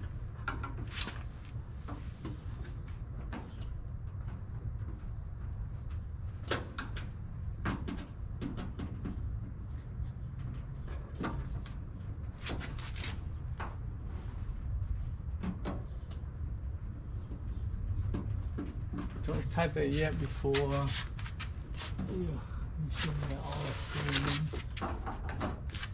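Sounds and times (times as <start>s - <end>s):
steady low rumble: 13.1s - 25.9s.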